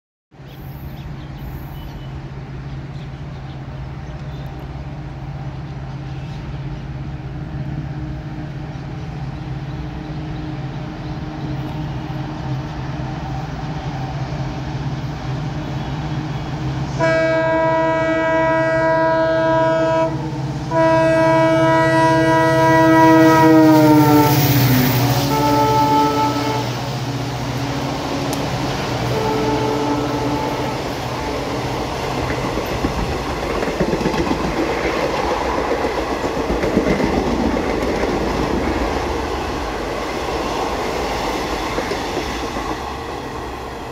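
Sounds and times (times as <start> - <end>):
diesel locomotive engine: 0.4 - 43.9
air horn blasts: 16.9 - 24.4, 25.1 - 26.8, 29.1 - 31.6.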